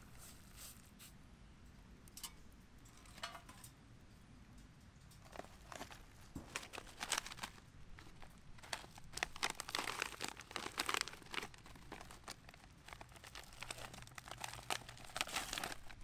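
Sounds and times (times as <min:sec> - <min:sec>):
meal pouch crinkling: 0:05.2 - 0:16.0
pouch tearing open: 0:06.6 - 0:07.6, 0:08.6 - 0:16.0.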